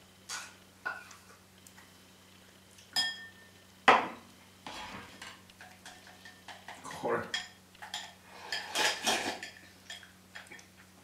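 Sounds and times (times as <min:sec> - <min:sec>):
chopsticks and tableware clinking: 0:05.1 - 0:10.5.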